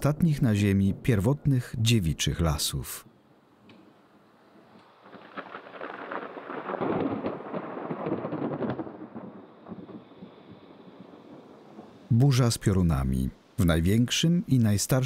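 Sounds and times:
thunder rumbling and crackling: 0.0 - 2.7, 4.6 - 12.4.

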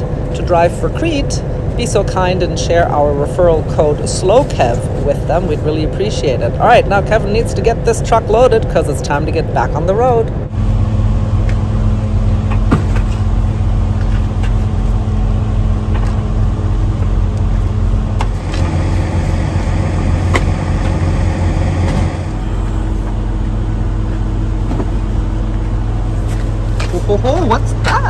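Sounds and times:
diesel truck engines idling: 0.0 - 28.0
knocks and clunks: 12.3 - 13.3.

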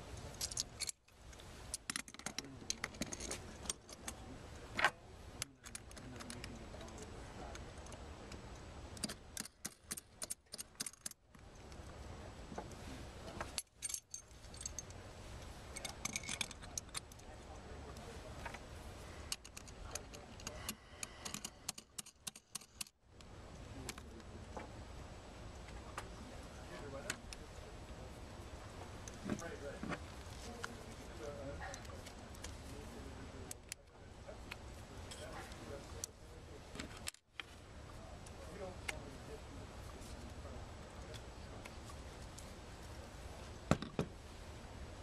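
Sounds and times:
light metal clicks and clinks: 0.1 - 4.3, 12.7 - 18.1, 19.2 - 22.9.

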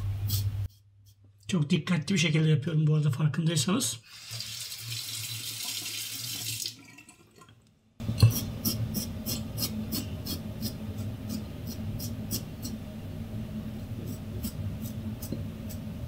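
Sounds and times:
sink tap running: 4.1 - 6.8.

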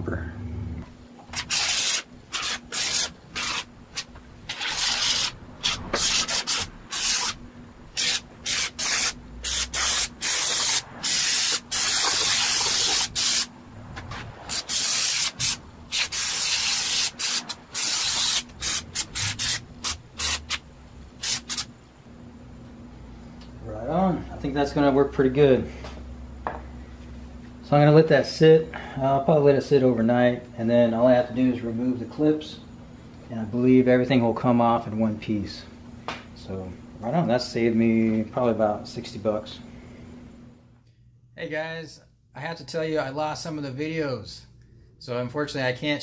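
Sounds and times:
spray foam can hissing: 1.4 - 7.4, 8.0 - 13.5, 14.5 - 20.6, 21.2 - 21.7.

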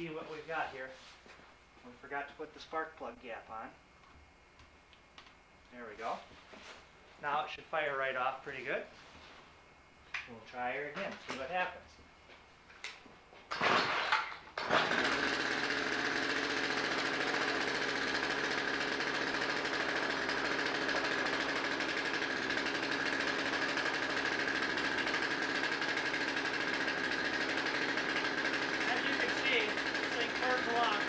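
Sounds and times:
motor whining and rattling: 14.6 - 31.0.

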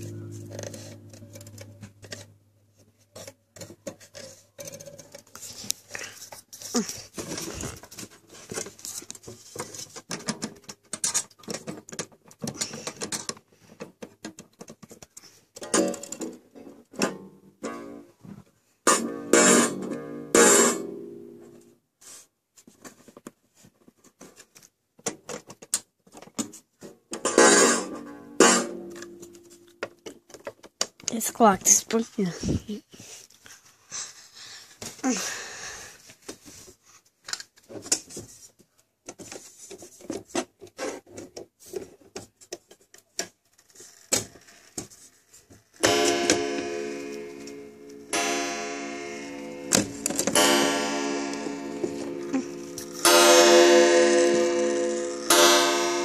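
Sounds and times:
clock gong ringing: 45.8 - 56.0.

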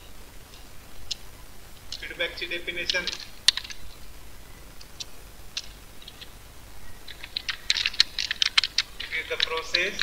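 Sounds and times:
keyboard typing: 7.0 - 10.0.

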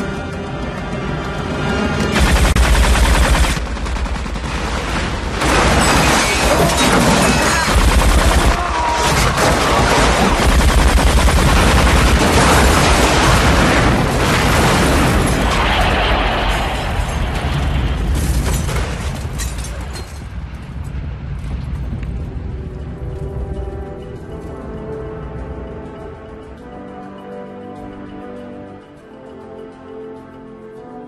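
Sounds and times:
explosions and gunfire: 2.0 - 20.0.

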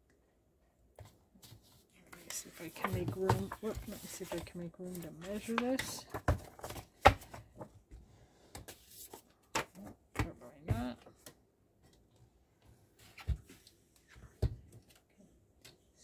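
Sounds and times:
paper sliding and rustling: 1.4 - 5.7.

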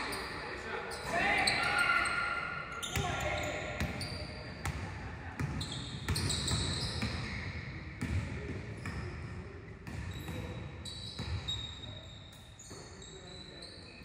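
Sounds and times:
sneaker squeaks: 0.0 - 4.8, 5.4 - 8.2, 8.8 - 14.0
basketballs bouncing on wooden floor: 3.8 - 7.4, 8.0 - 9.2, 9.8 - 10.6.

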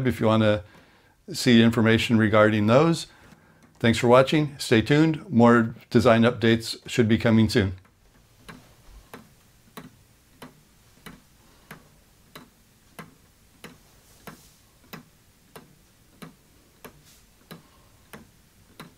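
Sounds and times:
pendulum clock ticking: 7.8 - 18.9.

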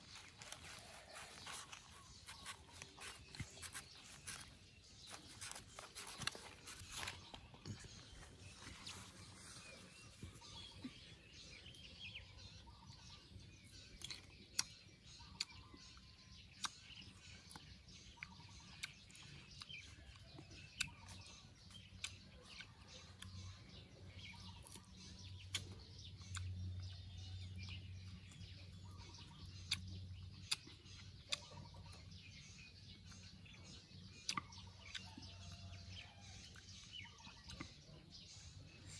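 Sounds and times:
person crunching raw mango: 0.0 - 11.0, 13.7 - 23.7, 24.3 - 32.0, 34.0 - 35.6
birds chirping: 0.0 - 38.9.

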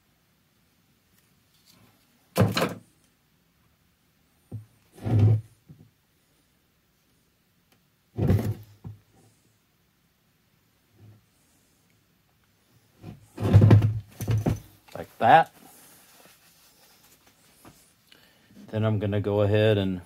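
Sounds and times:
dull knocks on wooden workbench: 13.4 - 14.6.

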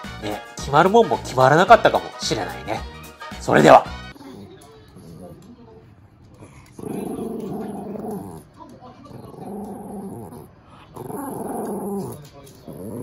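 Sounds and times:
dog growling: 4.1 - 5.5, 6.3 - 13.0.

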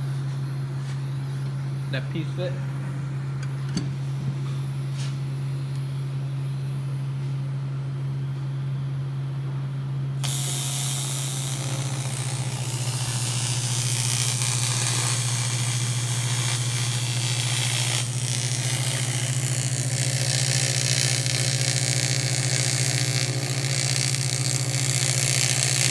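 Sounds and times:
low hum: 0.0 - 25.9
welding arc hissing: 10.2 - 25.9.

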